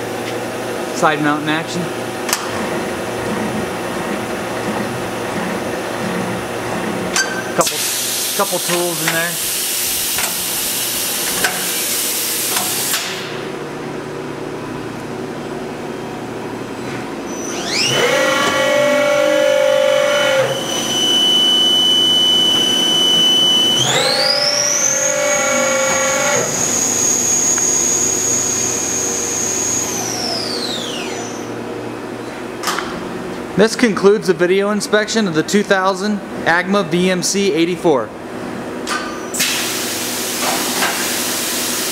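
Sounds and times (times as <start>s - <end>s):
loud hiss: 7.6s - 13.1s
spindle whine: 16.2s - 31.6s.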